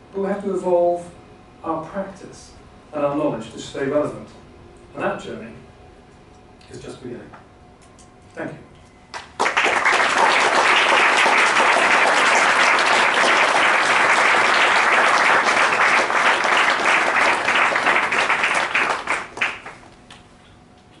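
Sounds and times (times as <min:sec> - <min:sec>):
audience applauding: 0:09.2 - 0:19.9.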